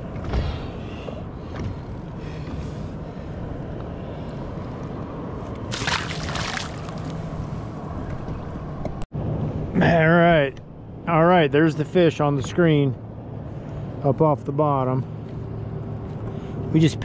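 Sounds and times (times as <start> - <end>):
water lapping around kayak: 5.7 - 7.7.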